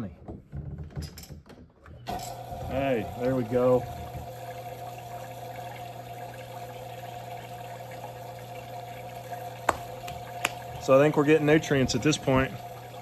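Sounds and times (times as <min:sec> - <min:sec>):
water pump humming: 0:02.1 - 0:13.0
water running: 0:02.1 - 0:13.0.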